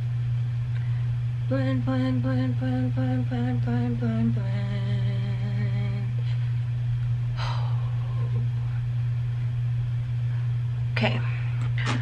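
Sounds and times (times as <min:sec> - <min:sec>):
steady low hum: 0:00.0 - 0:12.0
short breath or sigh: 0:07.4 - 0:08.3.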